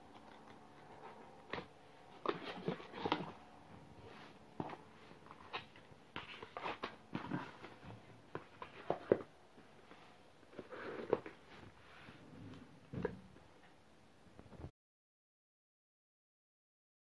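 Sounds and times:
cardboard boxes handled: 0:00.9 - 0:11.8.

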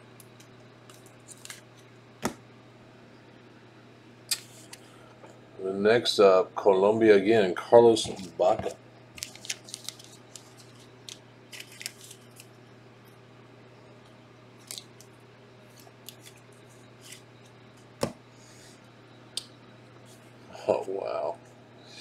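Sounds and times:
faint steady hum: 0:00.0 - 0:22.0
cards clicking and rustling: 0:00.3 - 0:02.4, 0:08.0 - 0:12.5.

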